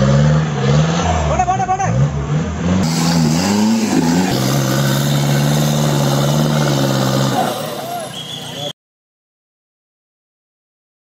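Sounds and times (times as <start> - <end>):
off-road engine revving: 0.0 - 8.7.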